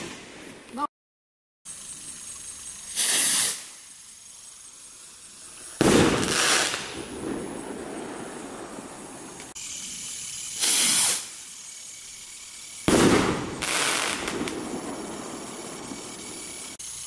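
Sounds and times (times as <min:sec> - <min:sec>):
firework fizzing: 0:01.7 - 0:17.0
firework rocket whoosh: 0:02.8 - 0:17.0
firework bang: 0:05.8 - 0:09.3, 0:12.8 - 0:16.3.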